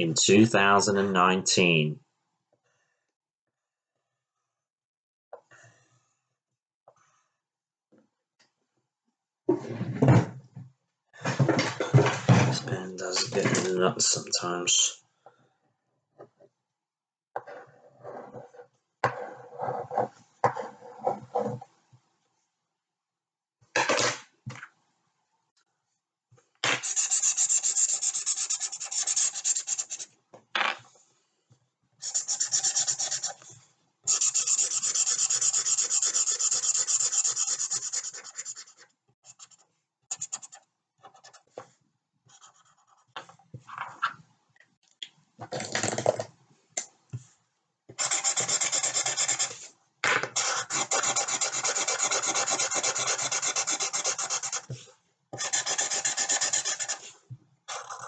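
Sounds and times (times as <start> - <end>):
pen scribbling on paper: 26.7 - 30.1, 32.0 - 33.4, 34.1 - 41.5, 48.0 - 49.7, 50.4 - 54.8, 55.4 - 57.1, 57.7 - 58.0.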